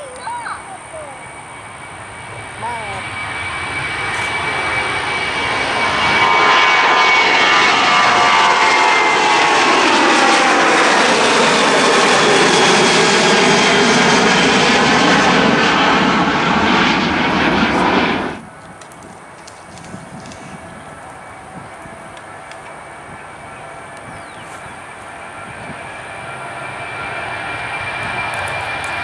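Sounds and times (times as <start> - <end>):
jet roar: 0.0 - 29.0
whining jet engine tones: 0.0 - 29.0.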